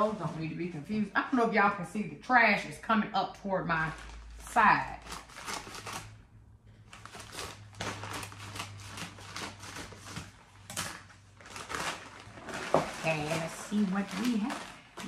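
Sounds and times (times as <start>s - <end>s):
stiff paper rustling and crinkling: 3.8s - 15.0s.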